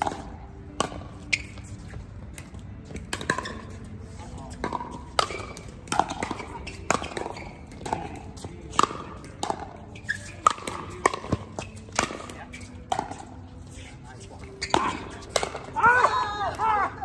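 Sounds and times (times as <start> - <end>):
ball bouncing on hard court: 0.0 - 1.7, 2.9 - 3.8, 4.6 - 13.3, 14.5 - 16.1.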